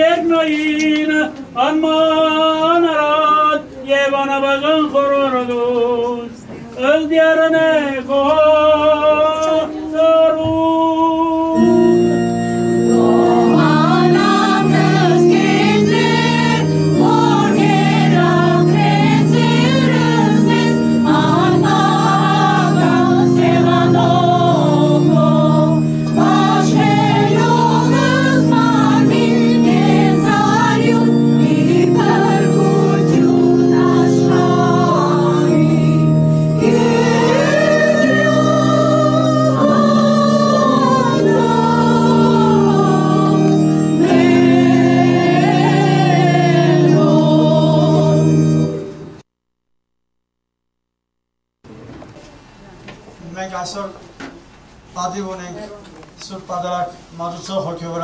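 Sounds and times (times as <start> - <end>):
sustained organ chords: 10.9 - 51.6
women's choir singing: 12.8 - 48.7
person chanting: 12.9 - 15.2.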